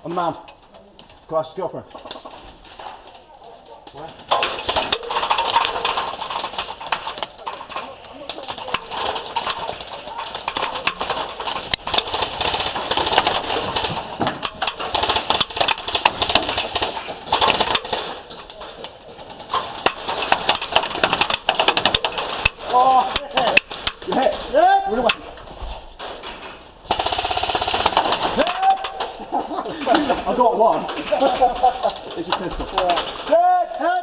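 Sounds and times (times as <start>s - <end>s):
rustling: 0.0s - 33.9s
airsoft guns firing bursts: 4.2s - 25.3s, 26.0s - 33.4s.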